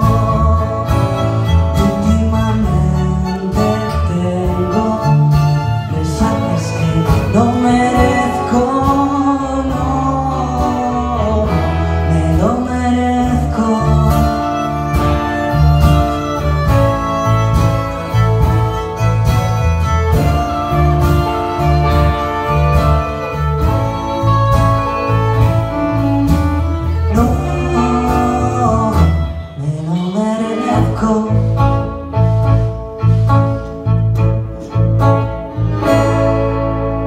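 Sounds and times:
acoustic and electric guitars: 0.0 - 37.0
bass: 0.0 - 37.0
drums: 0.0 - 37.0
fiddle: 0.0 - 37.0.

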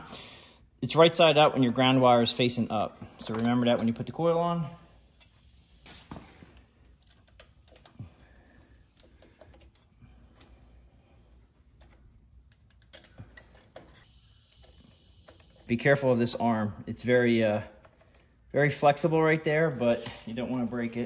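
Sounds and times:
light clicks of handled parts: 6.5 - 10.8, 11.6 - 15.7, 17.8 - 18.5.

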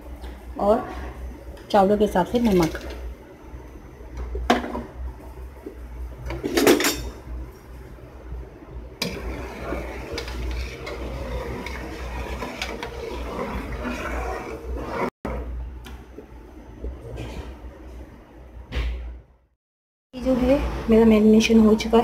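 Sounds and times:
boiling water hissing and bubbling: 7.6 - 15.2.

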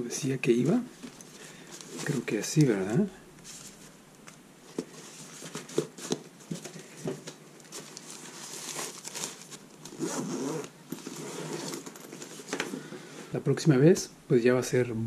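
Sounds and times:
bag rustling and knocking: 4.7 - 13.1
zipper being pulled shut: 9.8 - 12.6.

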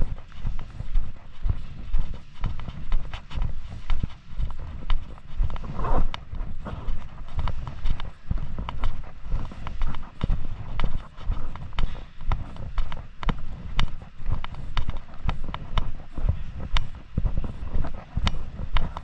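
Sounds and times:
low rumble: 0.0 - 14.5
footsteps on a hard surface: 0.0 - 19.0.

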